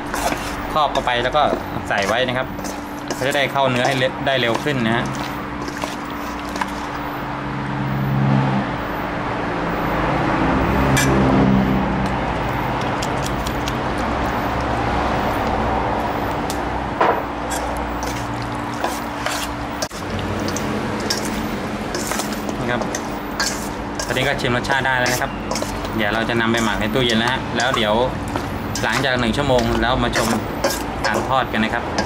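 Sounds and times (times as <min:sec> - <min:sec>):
spoon stirring wet chicken: 0:00.0 - 0:07.2, 0:12.0 - 0:15.6, 0:17.5 - 0:32.0
low motor hum: 0:04.1 - 0:32.0.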